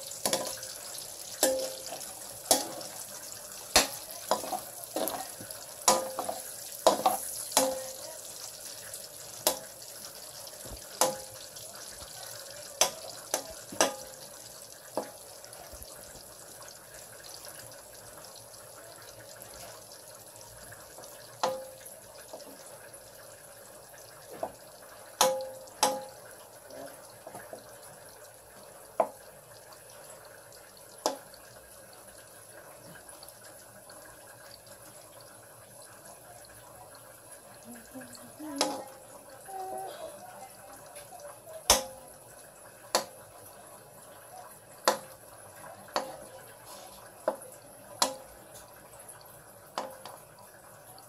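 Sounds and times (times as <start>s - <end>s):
meat sizzling in oil: 0.0s - 36.2s, 37.1s - 50.8s
metal spoon clinking on pan: 0.2s - 0.7s, 1.4s - 3.0s, 3.7s - 8.0s, 25.2s - 26.2s.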